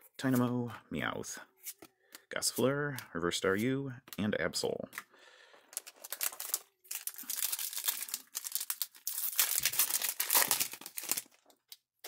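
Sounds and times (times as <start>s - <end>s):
foil wrapper crinkling: 5.7s - 11.8s.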